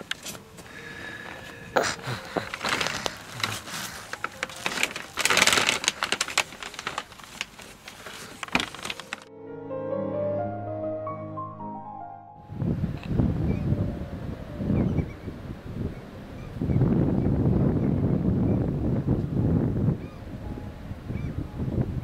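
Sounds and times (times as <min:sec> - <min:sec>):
piano music: 0:00.0 - 0:22.0
plastic bag rustling: 0:01.3 - 0:09.3.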